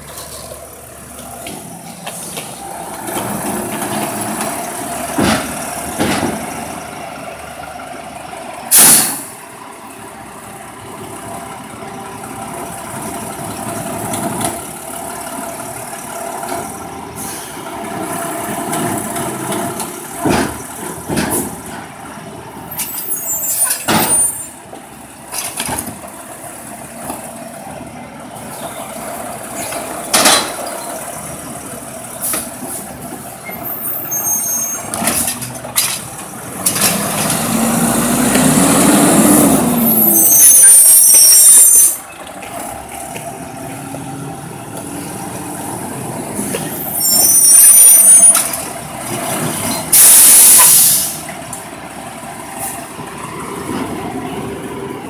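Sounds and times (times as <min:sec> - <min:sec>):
garbage truck engine running: 0:00.0 - 0:55.0
air brake hiss: 0:08.7 - 0:09.3, 0:17.2 - 0:17.6, 0:49.9 - 0:51.3.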